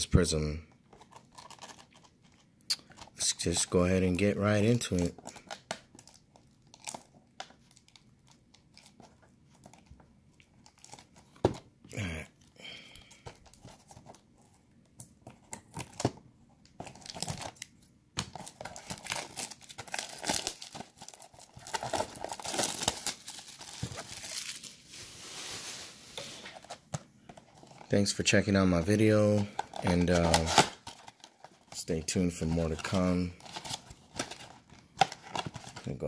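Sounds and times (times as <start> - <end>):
plastic wrap crinkling and tearing: 1.0 - 3.6, 18.4 - 26.8, 28.9 - 31.8.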